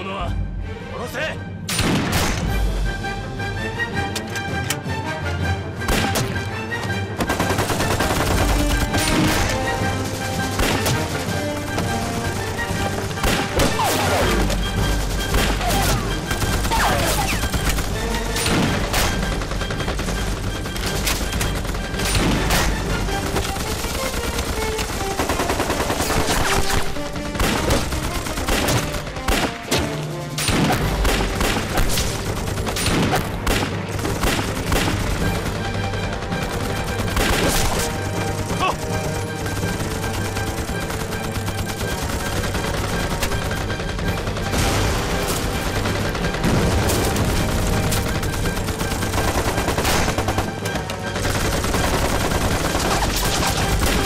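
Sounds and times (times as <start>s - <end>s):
gunfire: 1.7s - 2.6s, 7.2s - 54.0s
machine-gun fire: 7.2s - 29.7s, 39.2s - 54.0s.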